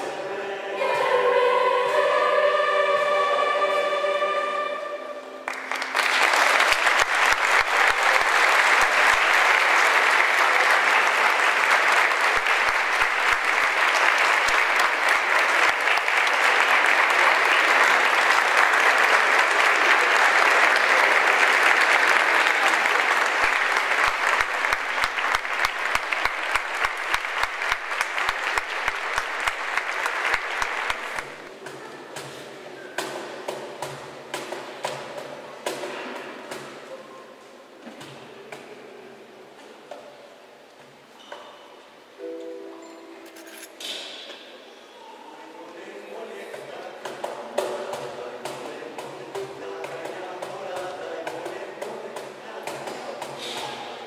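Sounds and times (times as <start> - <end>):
choir holding a chord: 0.0 - 5.5
audience applause: 5.4 - 31.5.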